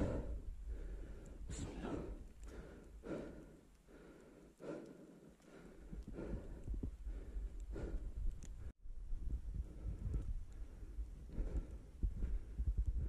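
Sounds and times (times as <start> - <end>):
man breathing hard: 0.0 - 8.8, 9.5 - 13.0
low microphone rumble: 5.8 - 13.0.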